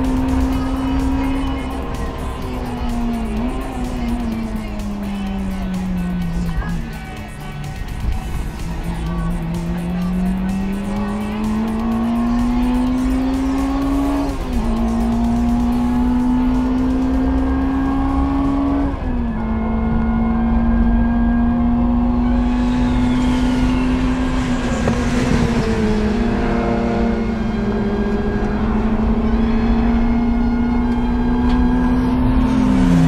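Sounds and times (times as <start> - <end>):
race car engine at full throttle: 0.0 - 33.0
car passing by: 22.1 - 33.0.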